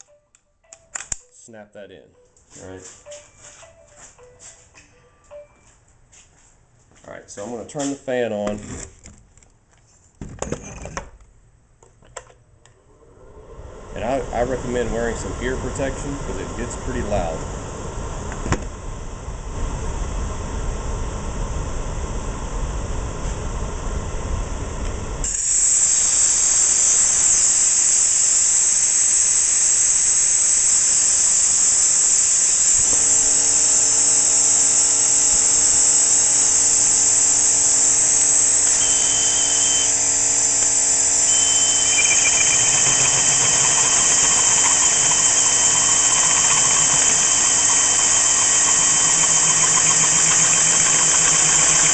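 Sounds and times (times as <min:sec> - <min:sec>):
shop fan rumbling: 0:10.2 - 0:28.5, 0:30.5 - 0:51.9
drill motor spinning: 0:13.8 - 0:17.4, 0:25.2 - 0:51.9
compressed air hissing: 0:25.3 - 0:51.9
hole saw squealing on steel: 0:38.2 - 0:40.0, 0:40.8 - 0:51.9.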